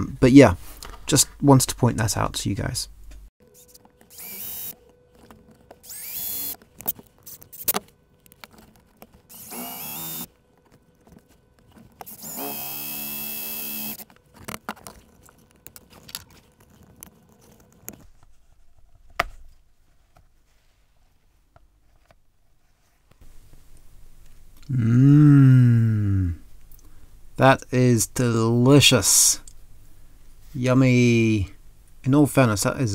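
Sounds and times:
clicks and handling sounds: 3.1s - 9.4s, 10.1s - 12.4s, 13.4s - 22.2s
cordless drill boring into leather: 4.1s - 4.8s, 5.8s - 6.6s, 9.3s - 10.3s, 12.0s - 14.1s.

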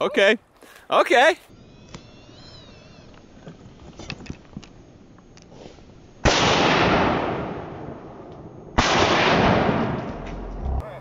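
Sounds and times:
shotgun shots: 6.2s - 8.0s, 8.8s - 10.2s.

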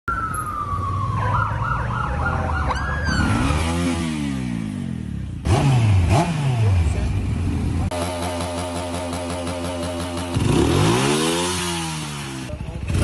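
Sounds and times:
police siren: 0.0s - 3.5s
engine revving: 2.1s - 7.2s, 7.8s - 13.0s
motorcycle revving sharply: 3.0s - 13.0s
motorcycle engine running: 3.2s - 13.0s.

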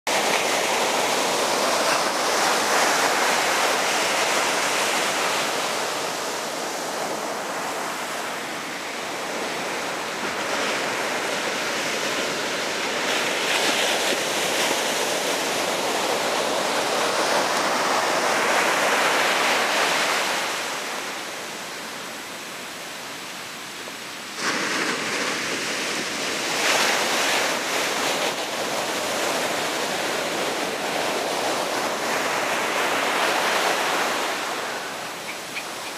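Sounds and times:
ocean surf breaking: 0.1s - 22.5s, 24.3s - 35.9s.

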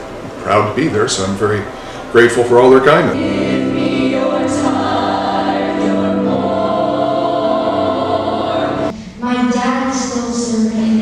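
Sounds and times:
girls' chorus singing: 3.0s - 11.0s.

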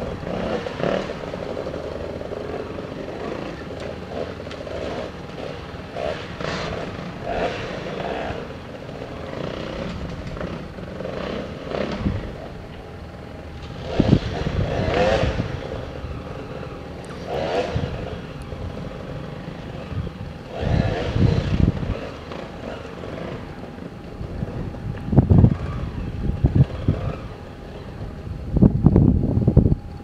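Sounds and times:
motorcycle engines revving: 0.0s - 30.0s.

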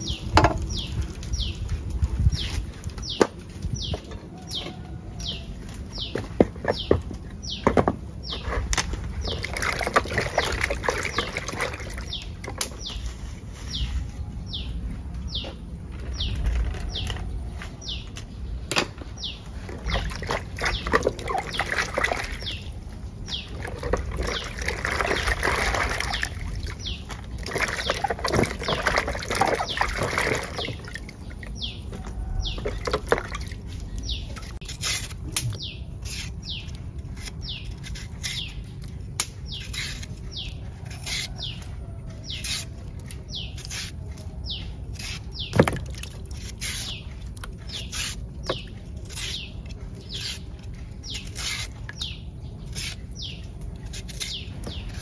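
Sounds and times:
small birds chirping: 0.0s - 55.0s
water splashing: 9.3s - 12.3s, 19.6s - 33.7s.

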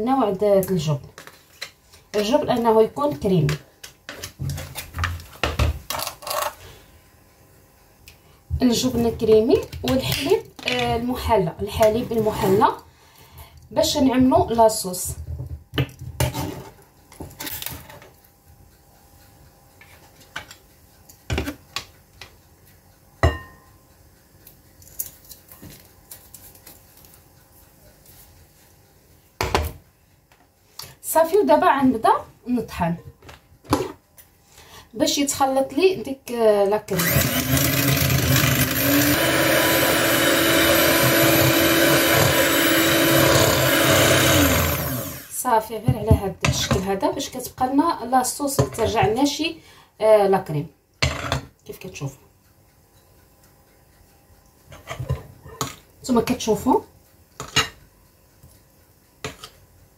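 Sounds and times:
electric hand mixer whine: 37.0s - 45.4s.

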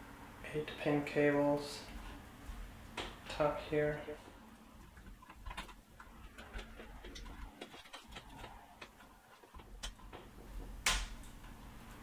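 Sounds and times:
cable plugs clicking and rattling: 4.8s - 11.6s.

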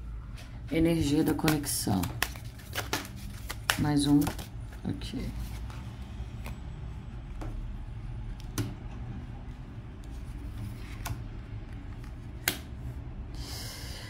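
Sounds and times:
cards shuffled by hand: 1.0s - 6.6s, 9.8s - 12.7s.

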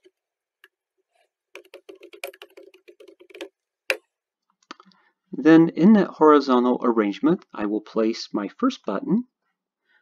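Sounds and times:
keyboard typing: 1.5s - 3.6s.

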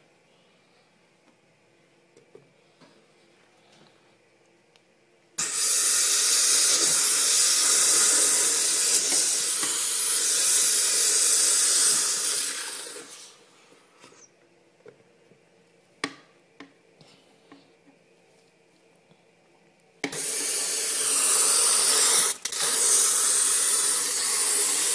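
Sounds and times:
sprayer hissing: 5.4s - 13.4s, 20.1s - 24.9s.

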